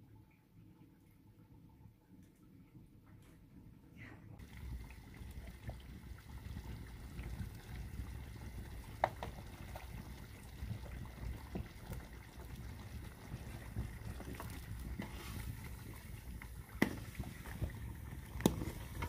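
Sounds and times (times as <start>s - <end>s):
stew bubbling in a pot: 4.4s - 19.0s.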